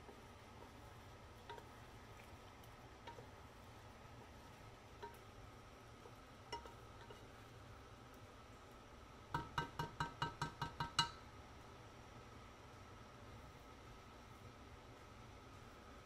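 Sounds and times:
spatula knocking on steel pot: 0:09.3 - 0:11.2.

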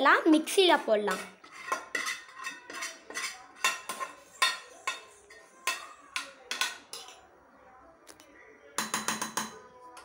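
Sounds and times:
metal spoon clinking on pan: 0:01.1 - 0:07.3, 0:08.8 - 0:09.6.

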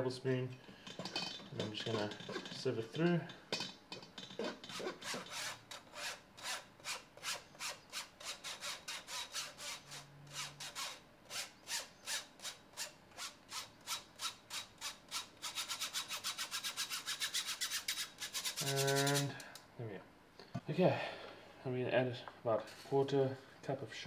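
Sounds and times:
spoon scraping metal sieve: 0:17.8 - 0:19.3.

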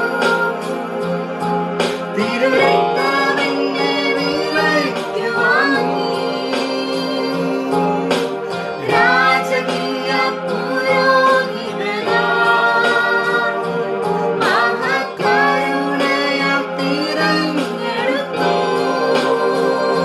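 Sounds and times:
person singing: 0:00.0 - 0:20.0
sustained instrumental accompaniment: 0:00.0 - 0:20.0.

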